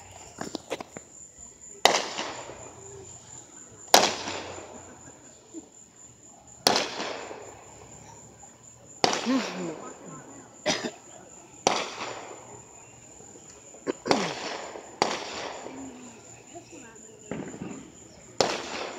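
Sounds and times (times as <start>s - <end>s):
faint fireworks crackles: 0.0s - 18.9s
fireworks bangs with echo: 1.7s - 5.2s, 6.5s - 8.2s, 9.0s - 10.7s, 11.6s - 18.9s.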